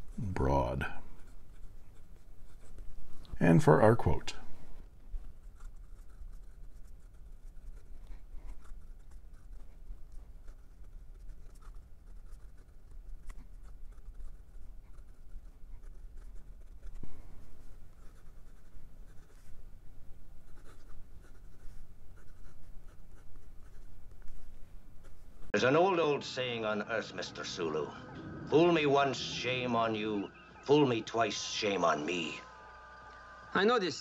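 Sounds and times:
pen nib scratching paper: 0.0s - 4.2s, 5.1s - 25.5s.

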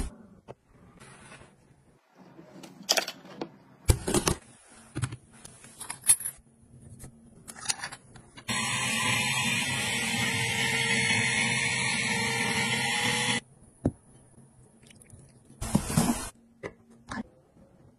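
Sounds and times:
electric motor running: 8.5s - 13.4s.

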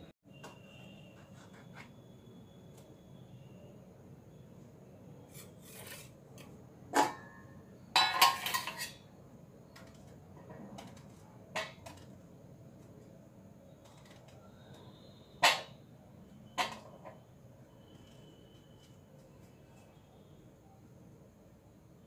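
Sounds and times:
metal plate clattering: 8.0s - 9.0s.

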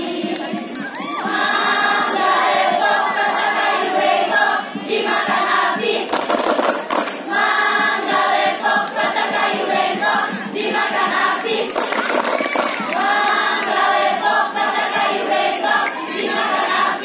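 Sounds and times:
people clapping: 0.0s - 2.5s, 5.9s - 7.3s, 11.0s - 16.9s
choir singing: 0.0s - 6.1s, 7.2s - 17.0s.

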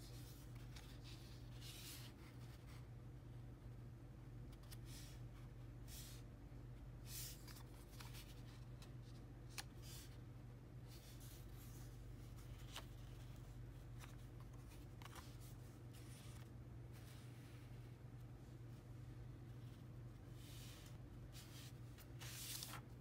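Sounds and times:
paper rustling: 7.1s - 10.1s, 10.9s - 17.3s, 20.5s - 23.0s.

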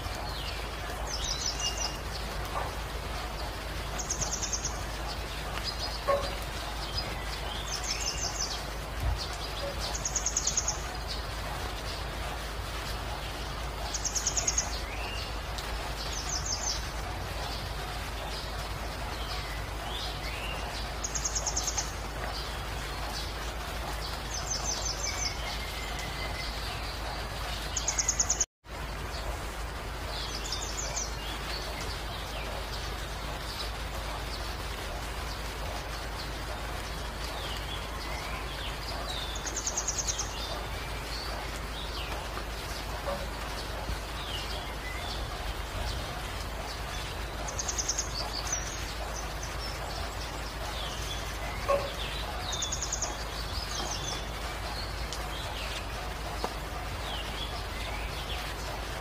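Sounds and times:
birds chirping: 0.0s - 59.0s
rain hiss: 0.0s - 59.0s.

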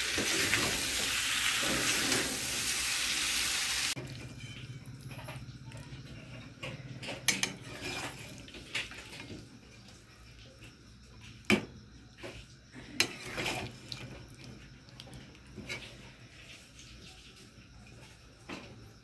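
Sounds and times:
spatula scraping metal wok: 7.3s - 8.4s, 13.0s - 13.8s.

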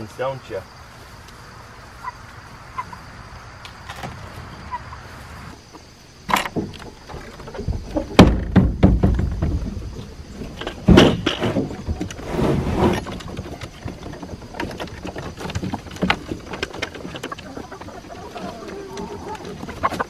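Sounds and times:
wooden knocks and thumps: 6.3s - 20.0s
light taps of hens: 13.5s - 20.0s.

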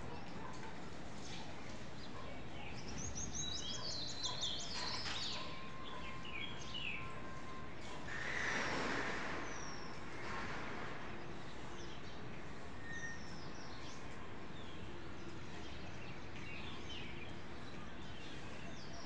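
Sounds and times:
outdoor background noise: 0.0s - 19.0s
small birds chirping: 1.2s - 7.1s.

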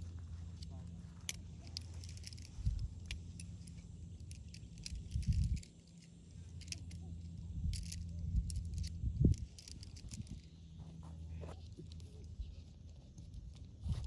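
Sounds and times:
tent pole sections clicking: 0.0s - 10.7s
steady low rumble: 0.0s - 14.0s.

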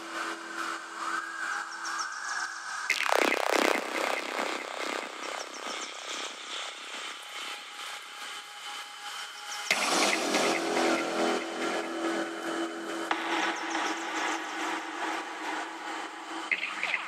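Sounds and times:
electronic synth textures: 2.9s - 8.0s, 9.7s - 17.0s
held low synth tone: 9.7s - 16.6s.

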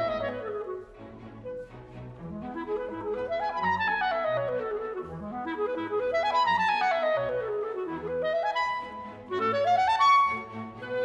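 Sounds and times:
string orchestra: 0.0s - 11.0s.

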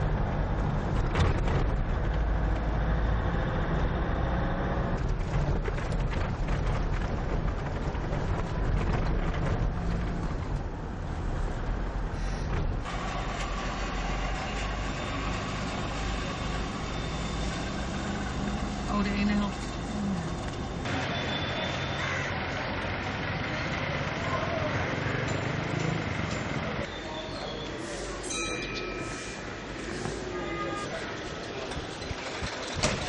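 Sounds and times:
car engine rumble: 0.0s - 21.0s
wind noise: 3.9s - 12.9s.

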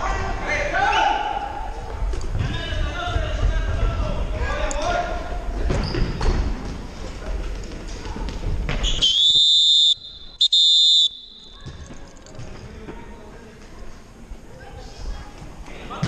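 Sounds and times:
voices of players and spectators: 0.0s - 16.0s
referee's whistle blasts: 8.9s - 11.6s.

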